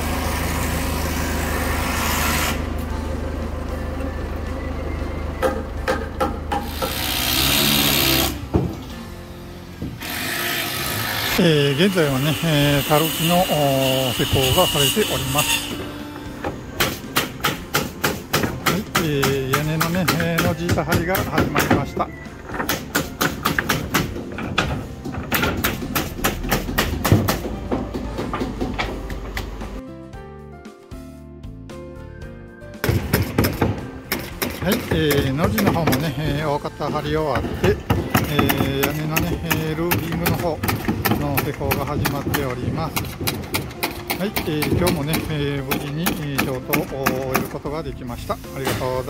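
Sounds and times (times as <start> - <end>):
low engine hum: 0.0 - 6.6
rasping scraping noise: 0.5 - 2.7, 6.6 - 8.4, 10.0 - 16.4
hammers driving nails into wood: 5.4 - 8.8, 15.7 - 29.5, 32.8 - 47.7
sharp knocks on wood: 22.5 - 29.5, 32.8 - 36.1.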